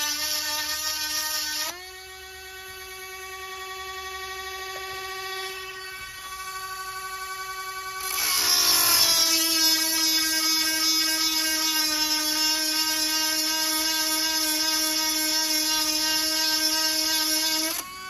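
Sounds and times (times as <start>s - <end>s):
rotary grinder whining: 0.0s - 18.0s.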